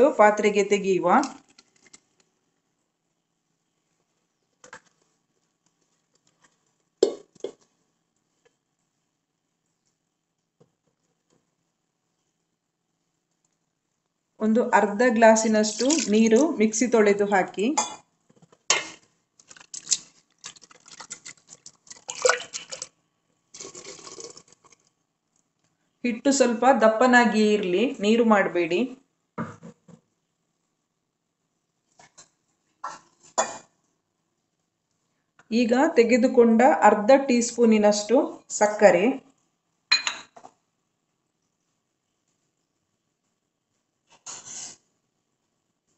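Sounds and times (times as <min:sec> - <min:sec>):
water splashing in a steel jar: 0:15.6 - 0:16.5, 0:18.7 - 0:23.0, 0:23.6 - 0:24.9.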